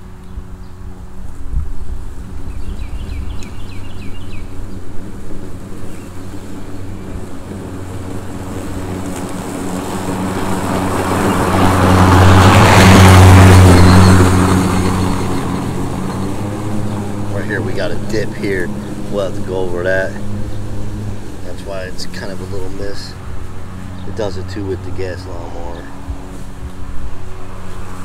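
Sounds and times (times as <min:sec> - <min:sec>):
lawn mower cutting grass: 0:00.0 - 0:28.0.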